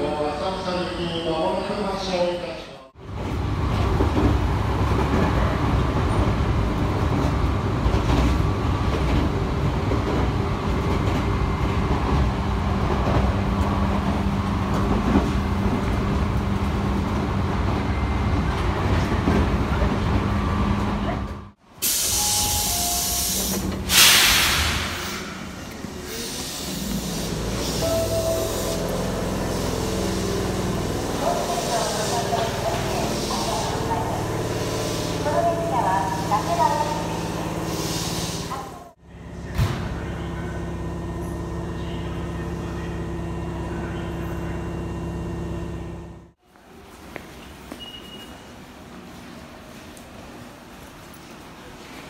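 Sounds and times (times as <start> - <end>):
train rumble and hum: 2.9 - 21.6, 22.2 - 46.8
air hiss burst: 21.8 - 27.8, 37.6 - 38.6.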